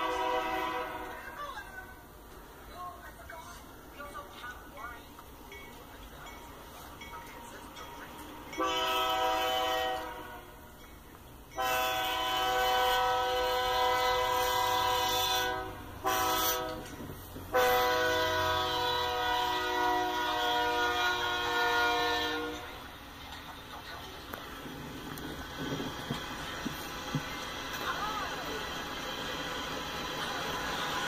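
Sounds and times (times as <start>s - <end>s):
locomotive air horn blasts: 0.0s - 1.2s, 8.6s - 10.6s, 11.6s - 22.8s.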